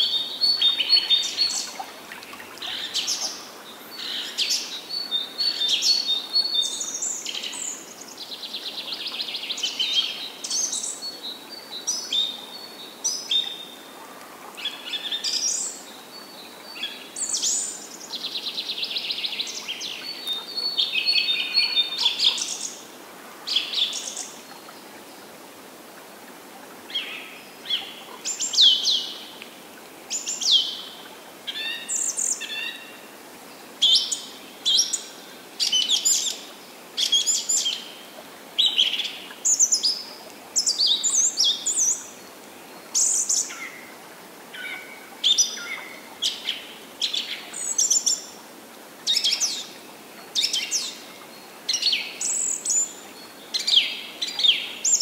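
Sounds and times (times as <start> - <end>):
songbirds singing: 0.0 - 22.9
soft steady background hiss: 0.0 - 55.0.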